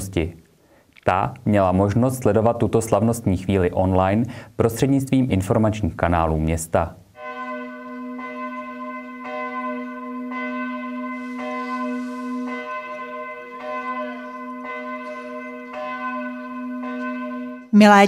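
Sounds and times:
church bell tolling: 0:07.2 - 0:17.8.

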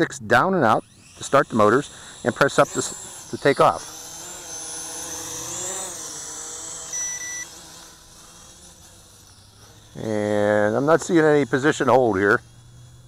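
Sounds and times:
drone propellers whining: 0:00.6 - 0:13.0
short electronic beep: 0:06.9 - 0:07.5.

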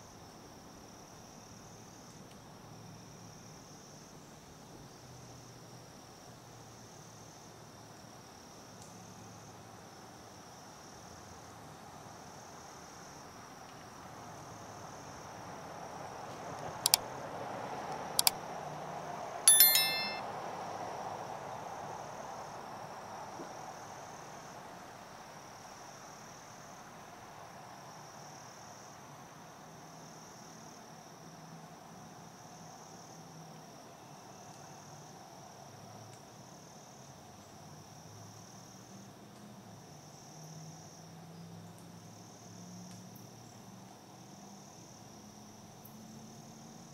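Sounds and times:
bell ding: 0:19.5 - 0:20.2
insects buzzing in woods: 0:28.0 - 0:46.9.

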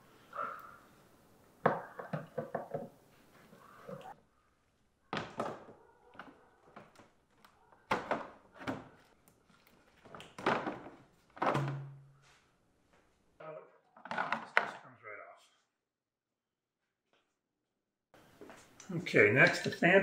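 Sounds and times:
hollow plastic knocks: 0:01.6 - 0:02.9, 0:10.4 - 0:12.0.

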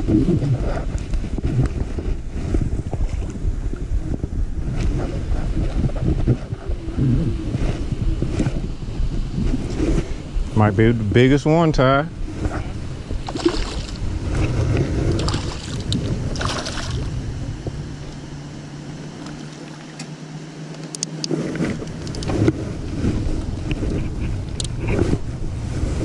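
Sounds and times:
steady low hum: 0:00.0 - 0:26.0
wind on microphone: 0:00.0 - 0:26.0
fish splashing at surface: 0:13.2 - 0:14.0, 0:15.2 - 0:17.1.

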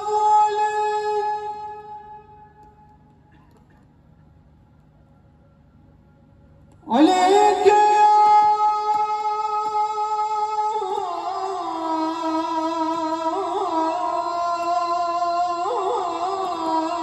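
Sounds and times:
man chanting through loudspeakers: 0:06.9 - 0:17.0.

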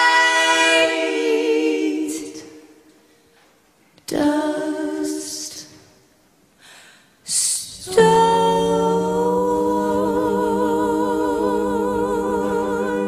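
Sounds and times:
women singing in harmony: 0:00.0 - 0:02.9, 0:04.1 - 0:05.8, 0:07.3 - 0:13.0.

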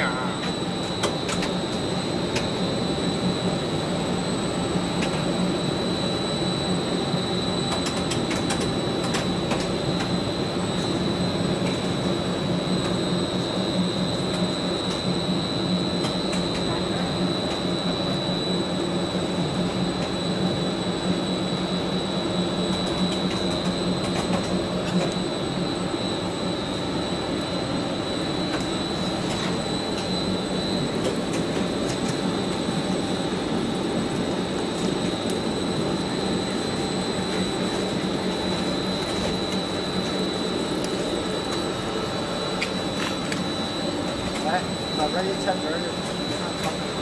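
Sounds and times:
high-pitched whine: 0:00.0 - 0:47.0
machine motors humming: 0:22.4 - 0:47.0.

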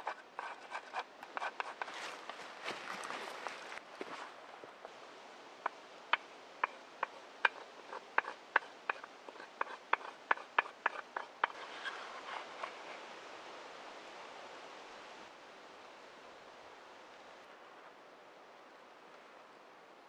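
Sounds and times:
soft scraping: 0:00.0 - 0:04.4, 0:10.8 - 0:13.1.

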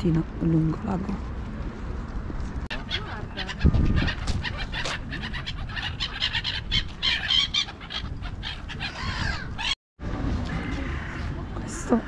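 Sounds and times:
flock of birds calling: 0:02.7 - 0:09.8.

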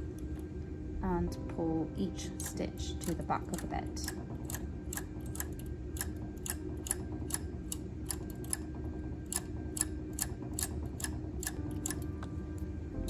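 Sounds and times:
knitting machine needles clicking: 0:02.4 - 0:12.7.

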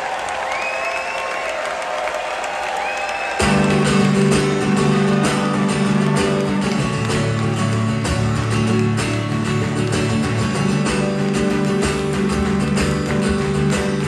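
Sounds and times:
audience crowd noise: 0:00.0 - 0:14.0
acoustic guitar strumming chords: 0:03.4 - 0:14.0.

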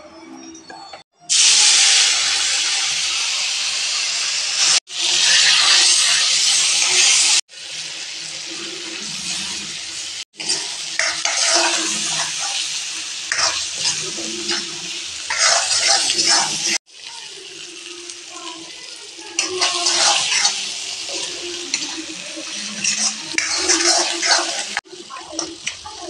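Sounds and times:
hot oil sizzling: 0:01.2 - 0:26.0
spatula scraping a pan: 0:10.4 - 0:12.7, 0:13.3 - 0:16.8, 0:19.4 - 0:25.9.

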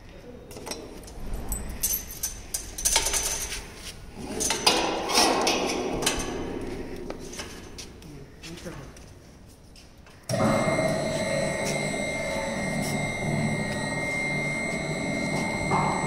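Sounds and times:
metal lid clanking and rattling: 0:04.3 - 0:06.6.

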